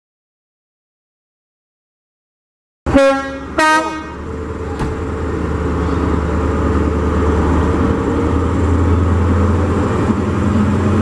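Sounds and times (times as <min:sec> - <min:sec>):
diesel engine rumbling: 0:02.9 - 0:11.0.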